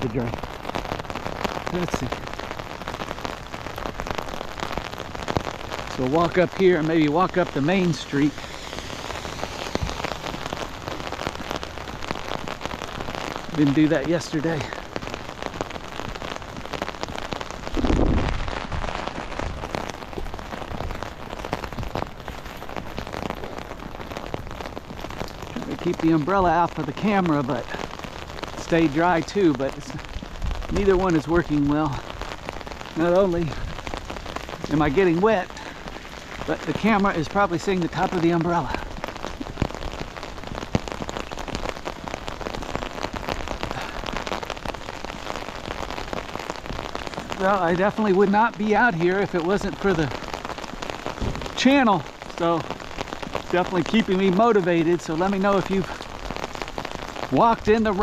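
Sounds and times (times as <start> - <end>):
rain on umbrella: 0.0 - 58.0
low rumble: 7.2 - 12.0.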